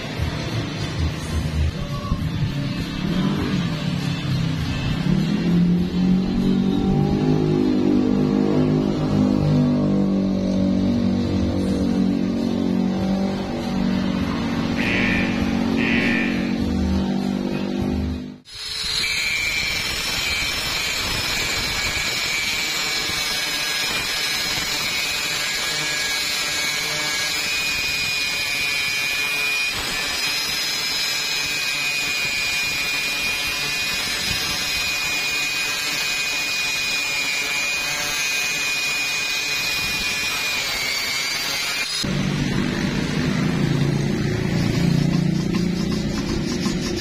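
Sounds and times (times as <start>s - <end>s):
angle grinder grinding steel: 10.3s - 47.0s.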